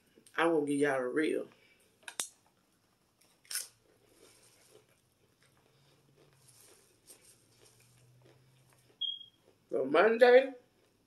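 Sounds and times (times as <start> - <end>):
person chewing: 3.2 - 9.7, 10.6 - 11.0.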